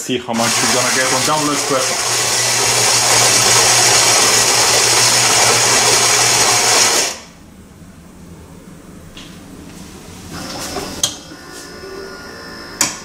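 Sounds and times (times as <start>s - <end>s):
coffee grinder whirring: 0.3s - 7.3s
espresso machine running quietly: 0.4s - 7.2s.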